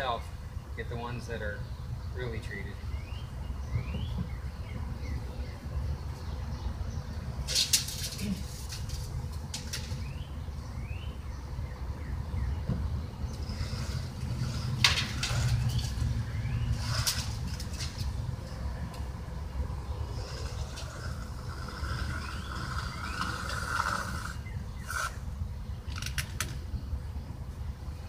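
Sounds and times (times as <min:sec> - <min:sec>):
knocks and scrapes on lumber: 0:13.5 - 0:16.1.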